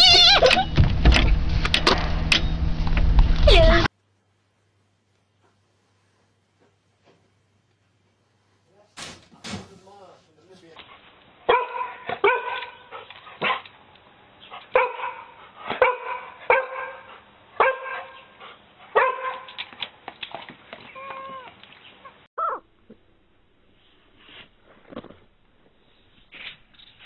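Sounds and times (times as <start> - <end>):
dog barking in sharp yaps: 11.5 - 13.7, 14.7 - 18.2, 19.0 - 19.6.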